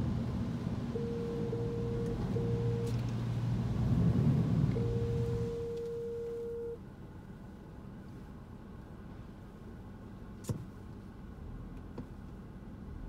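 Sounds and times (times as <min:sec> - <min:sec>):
car rumbling slowly: 0:00.0 - 0:13.0
electronic beeps: 0:01.0 - 0:03.0, 0:04.8 - 0:06.8.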